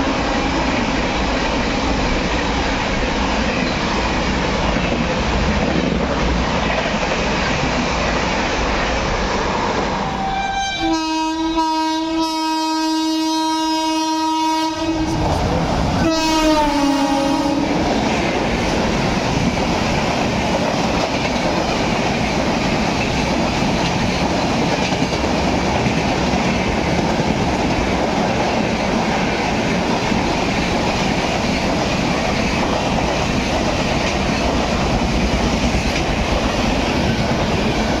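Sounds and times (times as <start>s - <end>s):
train wheels clacking on rails: 0.0s - 10.0s, 14.9s - 38.0s
train horn blasts: 10.0s - 15.2s, 16.0s - 17.8s.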